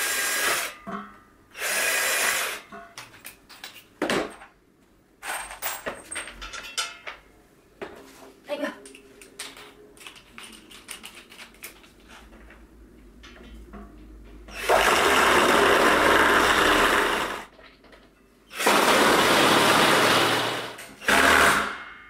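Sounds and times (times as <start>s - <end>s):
cordless drill driving screws: 1.6s - 2.6s.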